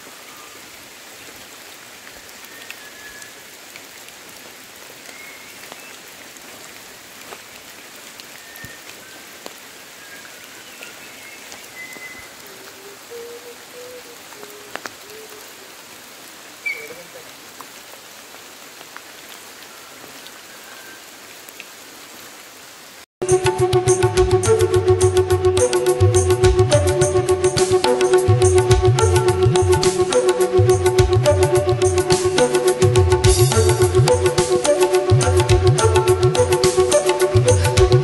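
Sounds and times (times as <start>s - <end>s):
water drips: 0.0s - 22.4s
rain on foliage: 0.0s - 38.0s.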